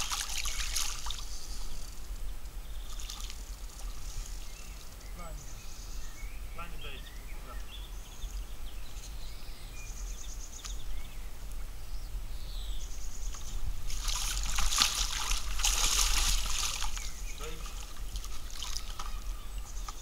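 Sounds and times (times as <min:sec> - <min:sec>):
fish thrashing and splashing water: 0:00.0 - 0:01.3, 0:13.9 - 0:19.4
faint water sounds: 0:00.0 - 0:09.2, 0:09.8 - 0:20.0.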